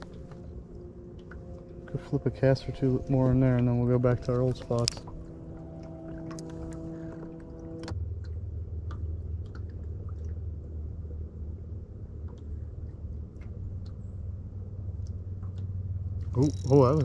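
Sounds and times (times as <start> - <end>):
electric motor humming: 0.0 - 7.9
high-pitched motor whine: 0.0 - 9.0, 16.1 - 17.0.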